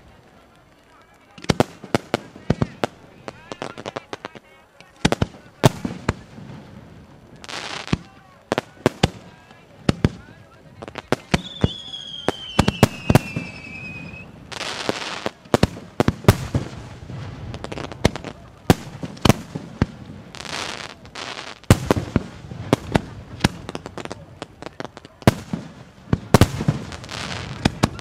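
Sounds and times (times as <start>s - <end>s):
fireworks bangs and bursts: 0.0s - 28.0s
fireworks hissing: 0.0s - 28.0s.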